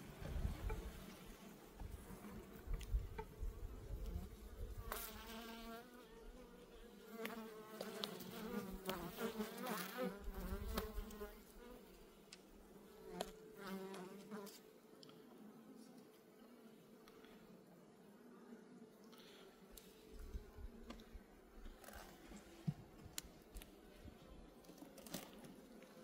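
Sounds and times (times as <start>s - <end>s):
single bees buzzing close by: 0.6s - 11.8s.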